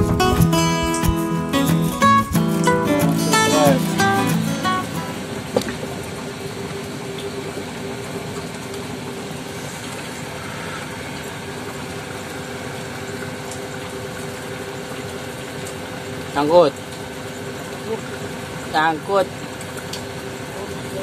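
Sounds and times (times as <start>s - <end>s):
rain on a river: 2.7s - 21.0s
heavy rain on a corrugated roof: 5.2s - 21.0s.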